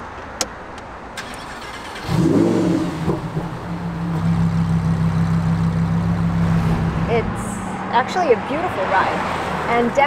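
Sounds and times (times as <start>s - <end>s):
car engine starting and idling: 1.0s - 8.7s.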